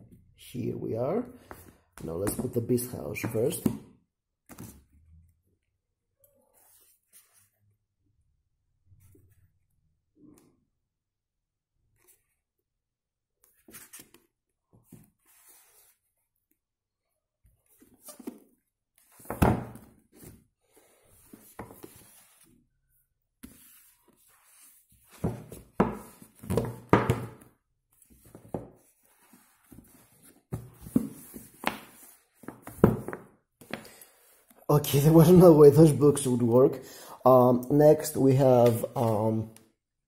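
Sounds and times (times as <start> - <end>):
books knocking on wooden table: 19.2 - 19.9, 25.2 - 27.5, 30.5 - 33.8.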